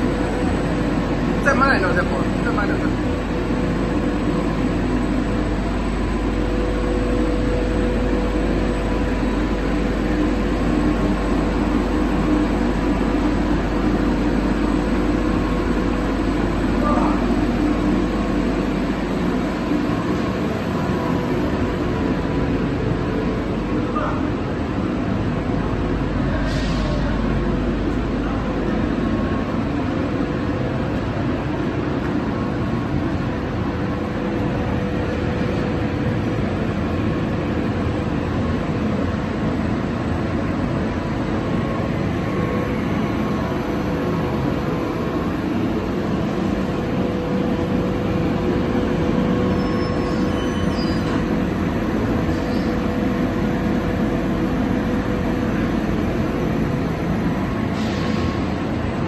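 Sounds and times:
machine drone with hum: 0:00.0 - 0:59.0.

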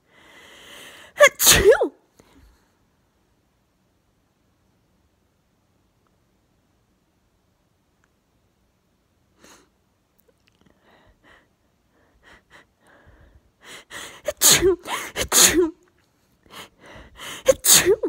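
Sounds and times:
woman breathing quickly: 0:00.0 - 0:01.2, 0:10.7 - 0:15.2, 0:16.3 - 0:17.6
woman sneezing: 0:01.2 - 0:02.0, 0:14.2 - 0:15.8, 0:17.4 - 0:18.0.

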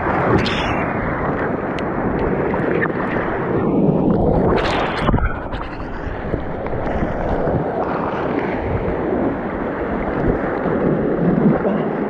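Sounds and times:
water splashing against boat: 0:00.0 - 0:12.0
wind rumbling on microphone: 0:00.0 - 0:12.0.

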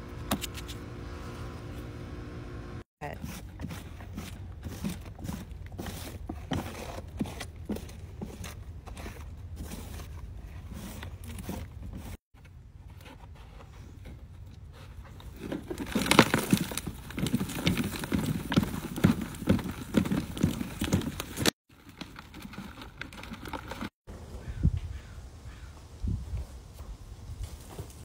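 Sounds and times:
hands rummaging through potting soil: 0:03.0 - 0:24.0.

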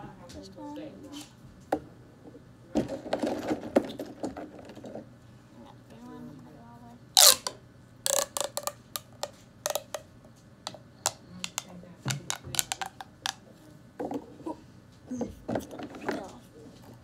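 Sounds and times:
plastic pop tube clicking and popping: 0:07.2 - 0:10.1, 0:10.7 - 0:13.4.

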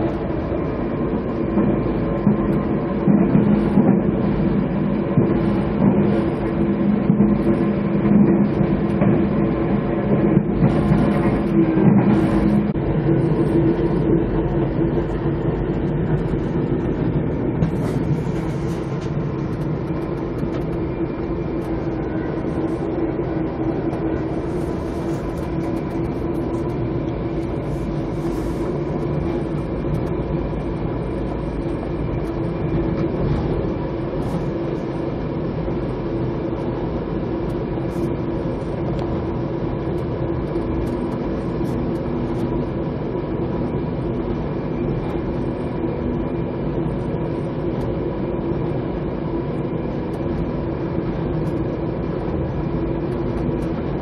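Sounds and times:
train rumble from inside coach: 0:00.0 - 0:54.0.

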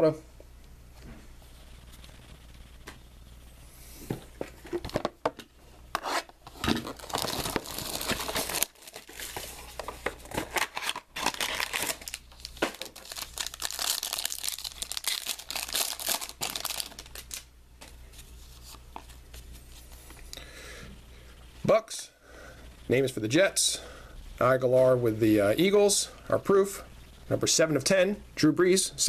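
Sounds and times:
card pack wrapper tearing and crinkling: 0:06.0 - 0:17.5.

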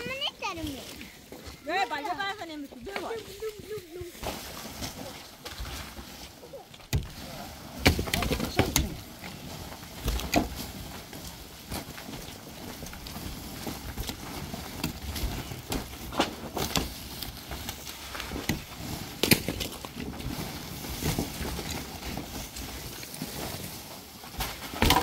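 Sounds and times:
debris clattering down: 0:24.4 - 0:25.0
pickaxe and shovel digging dirt: 0:24.6 - 0:25.0.

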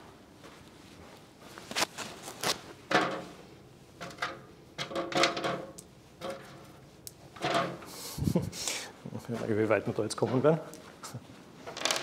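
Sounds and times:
rustling: 0:00.6 - 0:02.8
objects clattering: 0:04.0 - 0:07.9, 0:11.6 - 0:12.0.

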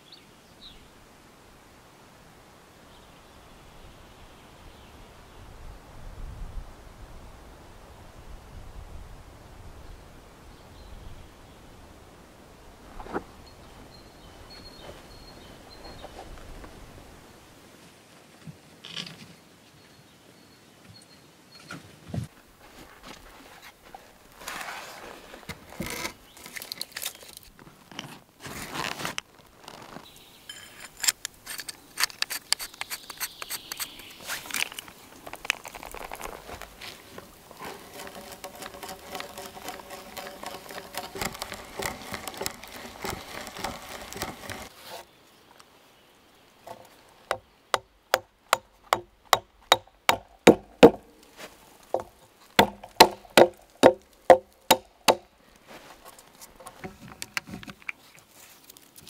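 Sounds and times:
hand auger boring into log: 0:30.5 - 0:45.0
hatchet knocking wooden peg: 0:47.3 - 0:51.1, 0:52.0 - 0:55.2.

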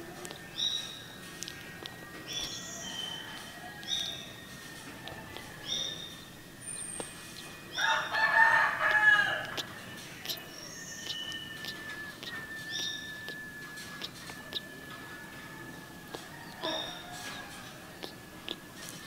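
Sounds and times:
faint steady high tone: 0:00.0 - 0:18.8
long loud animal call: 0:07.8 - 0:18.7
short high chirps: 0:09.7 - 0:14.8.

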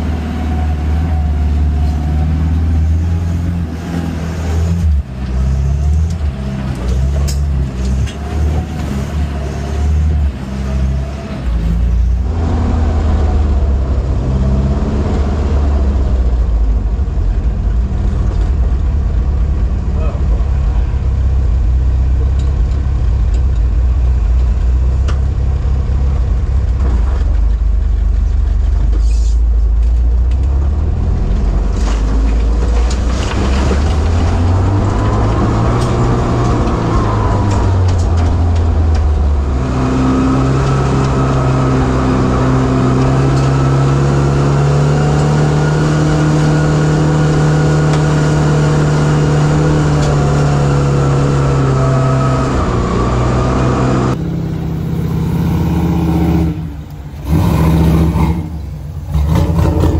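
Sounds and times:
truck engine driving: 0:00.0 - 0:59.9
knocks and rattles of bumping truck: 0:22.1 - 0:43.8.

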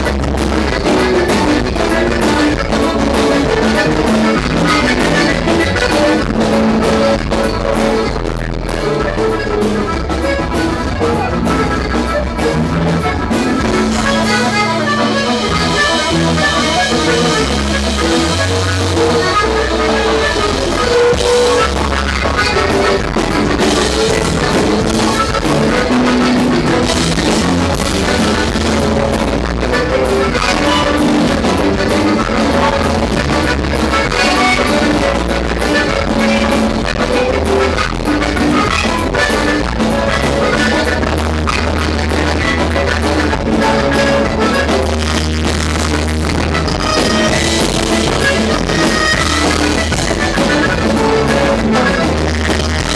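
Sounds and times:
button accordion: 0:00.0 - 0:52.9
drum kit: 0:00.0 - 0:52.9
electric bass: 0:00.0 - 0:52.9
guitars: 0:00.0 - 0:52.9.

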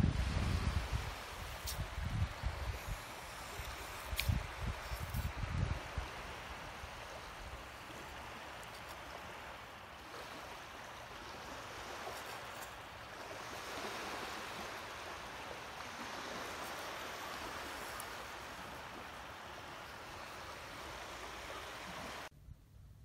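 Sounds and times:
surf rushing along shore: 0:00.0 - 0:22.3.

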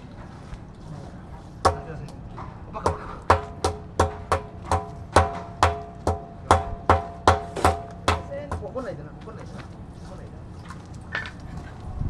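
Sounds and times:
hand tool striking metal: 0:01.6 - 0:02.1, 0:02.8 - 0:08.9.

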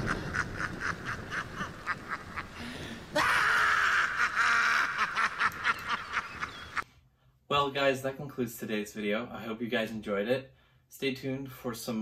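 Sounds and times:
rapid cackling laughter: 0:00.0 - 0:06.8.

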